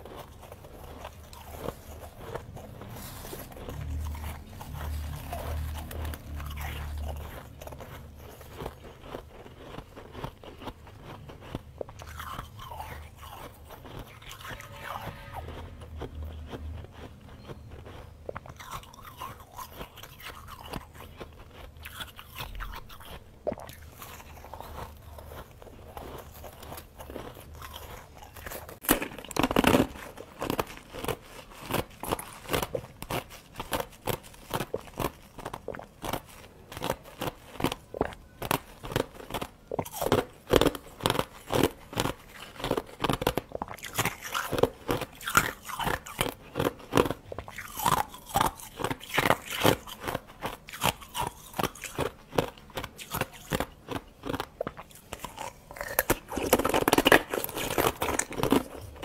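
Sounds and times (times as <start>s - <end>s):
crunching and chewing ice: 0.0s - 59.0s.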